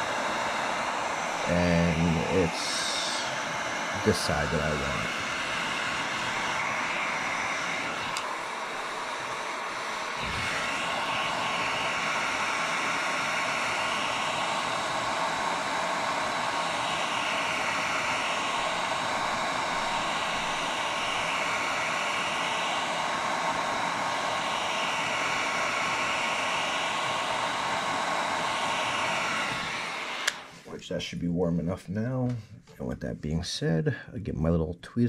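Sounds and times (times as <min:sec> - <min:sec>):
heat gun blowing hot air: 0:00.0 - 0:30.8.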